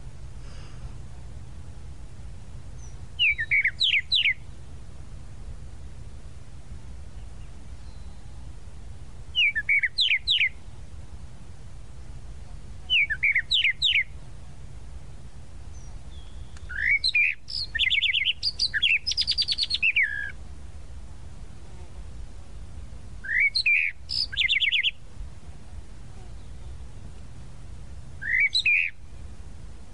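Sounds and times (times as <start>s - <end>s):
mockingbird singing: 2.8s - 4.6s, 9.3s - 10.6s, 12.9s - 14.2s, 15.7s - 20.4s, 23.2s - 25.0s, 28.2s - 29.0s.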